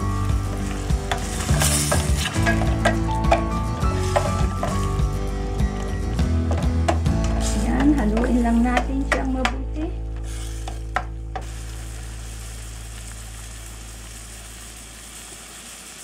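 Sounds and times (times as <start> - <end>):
fish and clams sizzling in a pan: 0.0 - 3.0, 10.2 - 16.0
background music: 0.0 - 13.8
spatula scraping a pan: 0.7 - 3.1.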